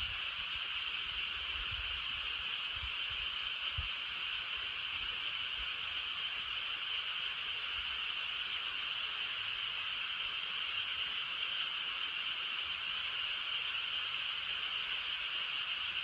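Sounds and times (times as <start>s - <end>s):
insects chorus: 0.0s - 16.0s
wind rumble on microphone: 1.5s - 3.0s.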